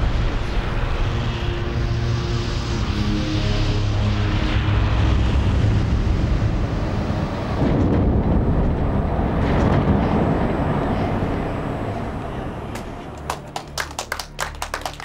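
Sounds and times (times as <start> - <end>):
damaged jet engine rumbling: 0.0 - 13.8.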